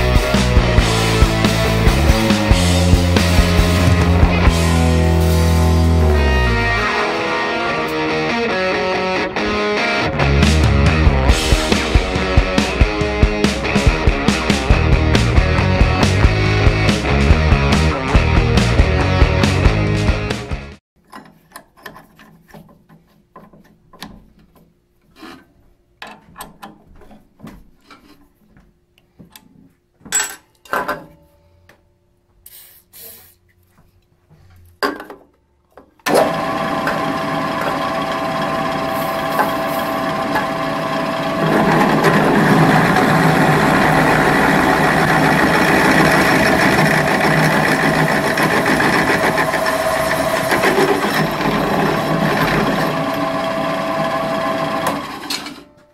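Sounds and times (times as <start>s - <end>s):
drill press motor hum: 36.1s - 55.6s
drill bit grinding into steel: 36.2s - 55.5s.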